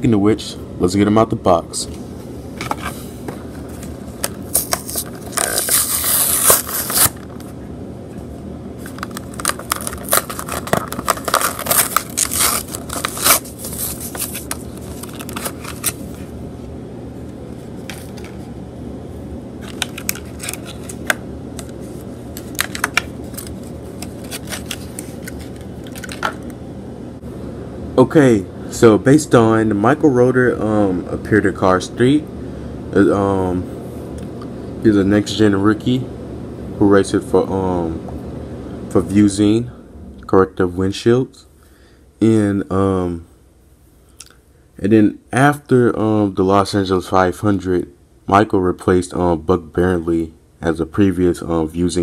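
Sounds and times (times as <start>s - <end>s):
plastic packaging tearing: 4.5s - 7.3s, 8.9s - 16.0s, 19.6s - 21.2s, 22.4s - 26.5s
plastic crackling and crinkling: 8.9s - 16.0s.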